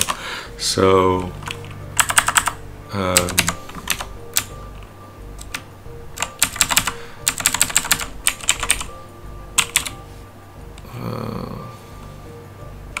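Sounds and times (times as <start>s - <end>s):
typing on computer keyboard: 0.0s - 0.2s, 1.2s - 4.5s, 6.2s - 8.9s, 9.6s - 10.0s.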